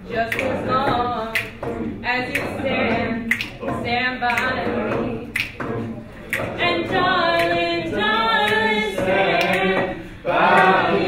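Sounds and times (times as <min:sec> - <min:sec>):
students singing a cappella: 0:00.0 - 0:11.0.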